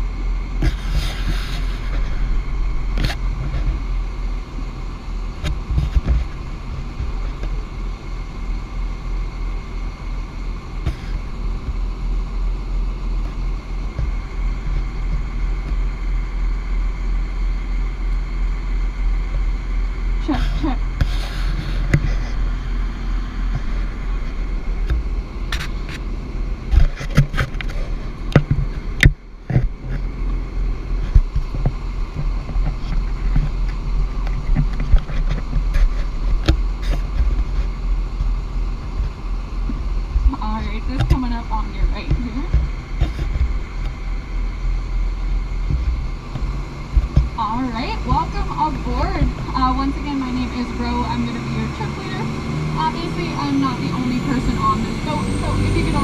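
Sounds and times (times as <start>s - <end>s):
vehicle rumble: 0.0s - 56.0s
sharp knocks and crackles: 0.6s - 7.7s, 13.2s - 15.9s, 20.9s - 22.8s, 23.4s - 51.4s.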